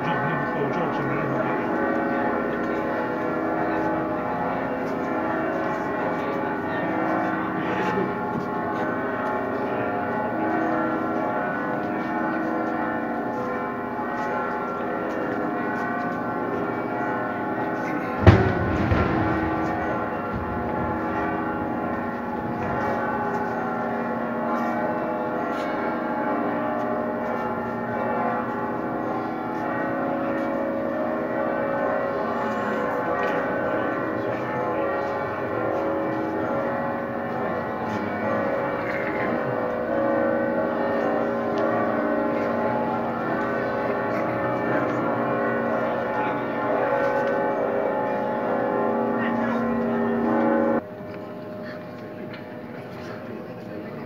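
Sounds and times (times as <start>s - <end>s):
church bells pealing: 0.0s - 54.0s
loud bang: 18.2s - 21.8s.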